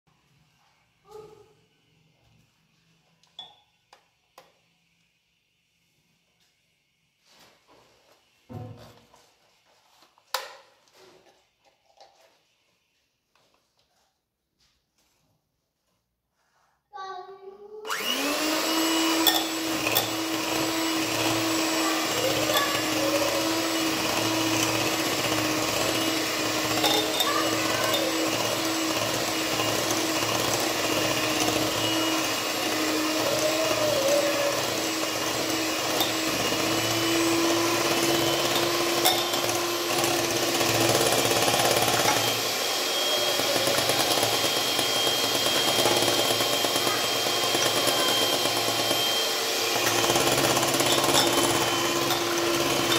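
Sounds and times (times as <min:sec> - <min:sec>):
electric hand mixer whipping cream: 0:17.8 - 0:52.9.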